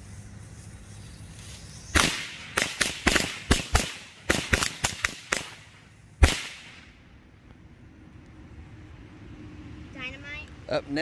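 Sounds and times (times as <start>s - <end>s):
firecrackers banging: 0.0s - 7.2s.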